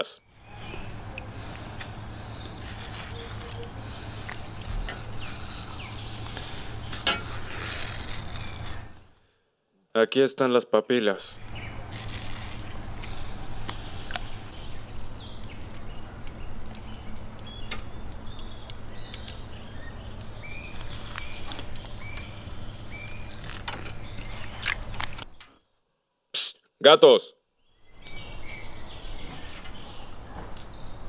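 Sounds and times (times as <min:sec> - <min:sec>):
small birds chirping: 0:00.0 - 0:09.2, 0:11.3 - 0:25.8, 0:27.5 - 0:31.0
steady low hum: 0:00.2 - 0:09.2, 0:11.3 - 0:25.4
wet squelching and splashing: 0:20.7 - 0:25.3.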